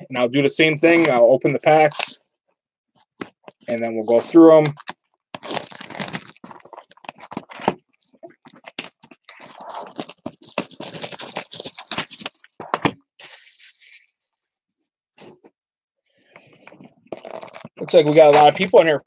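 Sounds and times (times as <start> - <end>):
plastic shrink wrap crinkling and tearing: 4.7 - 14.1, 17.1 - 18.9.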